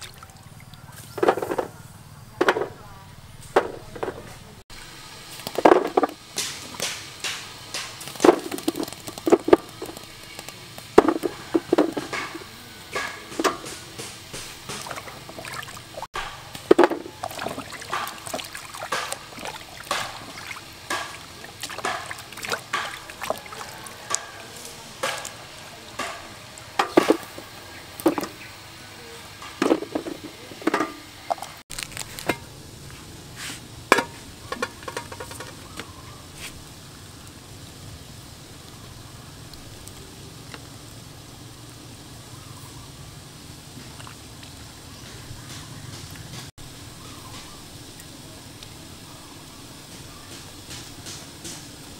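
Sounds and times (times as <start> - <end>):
cassava pieces clattering in metal pot: 1.2 - 1.7, 5.5 - 15.4, 25.0 - 28.4, 33.9 - 35.8.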